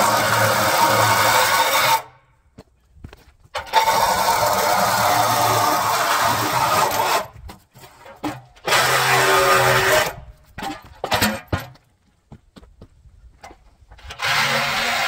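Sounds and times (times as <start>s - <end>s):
reciprocating saw cutting steel: 0.0s - 2.1s, 3.6s - 7.4s, 8.6s - 10.2s, 14.0s - 15.0s
metal clanks: 9.9s - 11.8s.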